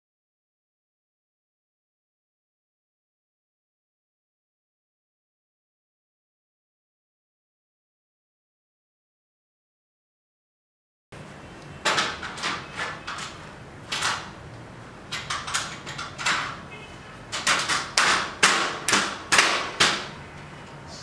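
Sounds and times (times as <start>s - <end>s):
aluminium frame knocks: 17.3s - 20.2s.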